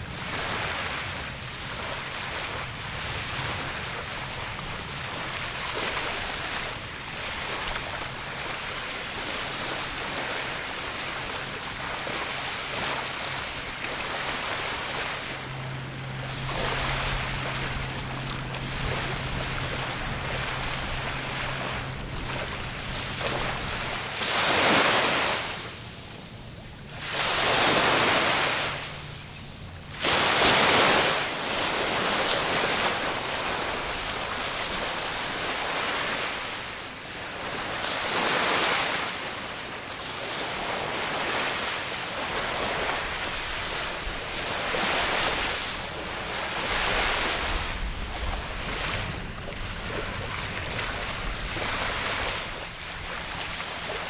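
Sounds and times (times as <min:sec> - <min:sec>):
wind on microphone: 0:00.0 - 0:35.6, 0:42.4 - 0:54.0
boat engine humming: 0:00.0 - 0:54.0
waves washing and splashing: 0:00.0 - 0:54.0.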